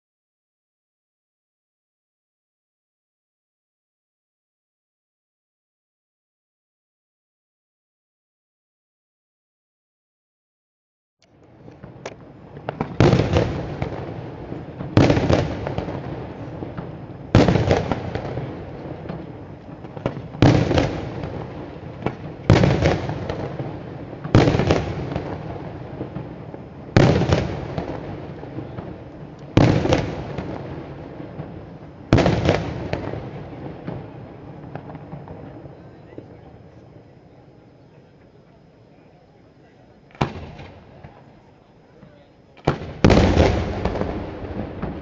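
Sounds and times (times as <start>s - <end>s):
small firework cracks: 11.2s - 37.2s, 40.0s - 45.0s
fireworks bursting in loud bangs: 11.6s - 37.1s, 40.0s - 45.0s.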